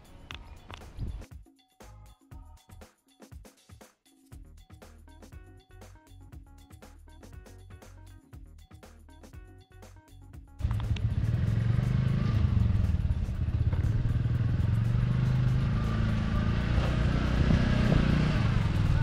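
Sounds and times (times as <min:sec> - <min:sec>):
soft background music: 0:00.0 - 0:19.0
quad bike engine running: 0:10.6 - 0:19.0.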